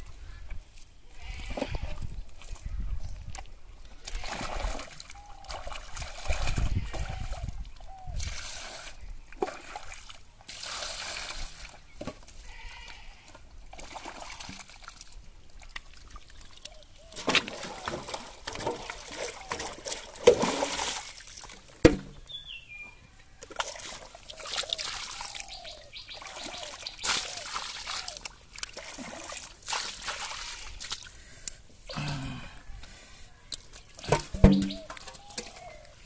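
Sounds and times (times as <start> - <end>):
muddy water splashing: 1.2 - 22.3, 23.4 - 36.0
fish thrashing in water: 4.1 - 7.6, 13.7 - 21.6, 26.2 - 31.1
water poured from bucket: 8.2 - 11.7, 17.2 - 21.6, 26.2 - 31.1.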